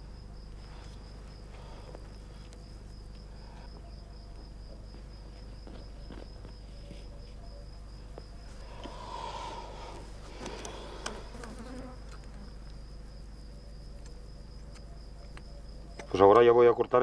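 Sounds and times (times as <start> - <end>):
steady high-pitched insect tone: 0.0 - 17.0
flying insect buzzing past: 8.7 - 13.2
faint clicks: 9.9 - 12.8.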